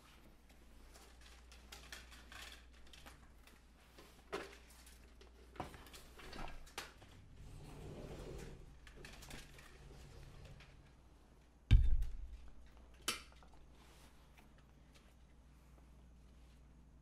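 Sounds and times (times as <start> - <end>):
low steady hum: 0.0 - 17.0
soft rustling: 13.6 - 17.0.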